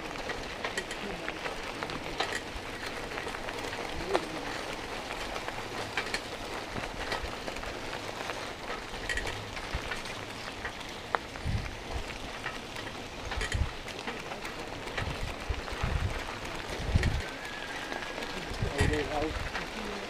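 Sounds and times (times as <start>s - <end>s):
rough road riding noise: 0.0s - 20.0s
small clicks and rattles: 0.0s - 20.0s
wind thumps on microphone: 11.4s - 11.8s, 15.0s - 16.2s.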